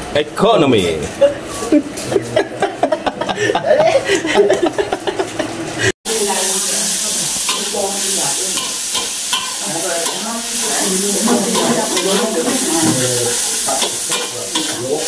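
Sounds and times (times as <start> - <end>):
food sizzling in a pan: 4.6 - 15.0
spatula scraping and clicking on pan: 8.6 - 10.2, 13.7 - 14.8.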